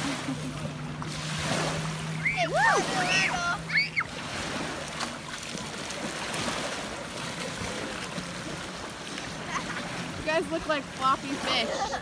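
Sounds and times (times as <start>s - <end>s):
water splashing: 0.0s - 12.0s.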